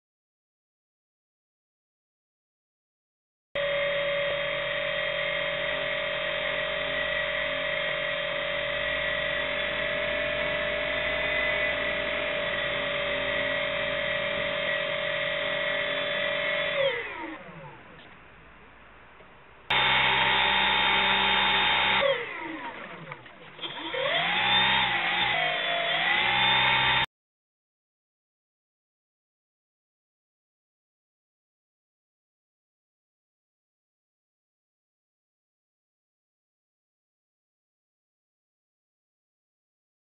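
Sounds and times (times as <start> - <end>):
electric motor and propeller whining: 3.6 - 17.8, 19.7 - 27.1.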